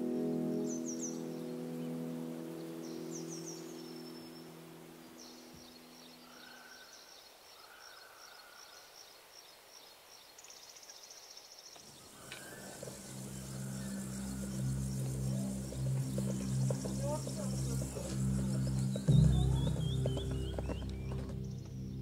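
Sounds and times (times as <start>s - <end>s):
small birds chirping: 0.0s - 22.0s
fast insect-like trill: 12.2s - 20.8s.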